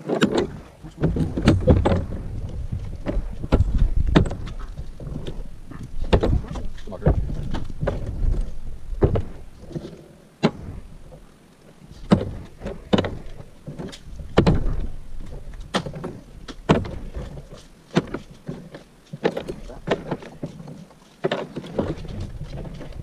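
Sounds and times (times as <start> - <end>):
plastic parts knocking and clattering: 0.0 - 10.6
low rumble: 0.5 - 9.6.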